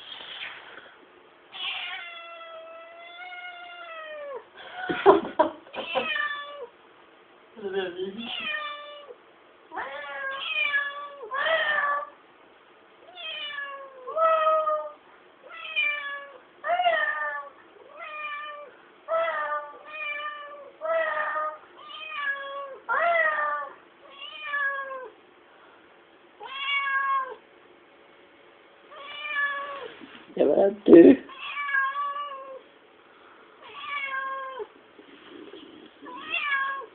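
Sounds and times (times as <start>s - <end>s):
cat meowing: 1.5s - 4.4s, 5.8s - 6.7s, 8.2s - 12.2s, 13.1s - 25.2s, 26.4s - 27.4s, 28.9s - 30.0s, 31.3s - 32.7s, 33.6s - 34.7s, 36.0s - 36.9s.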